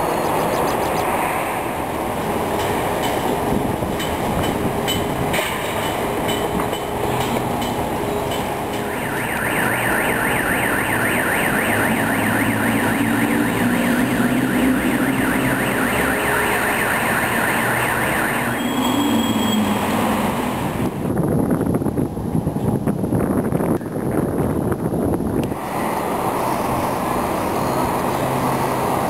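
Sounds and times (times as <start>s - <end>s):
electronic siren warbling: 8.8s - 19.8s.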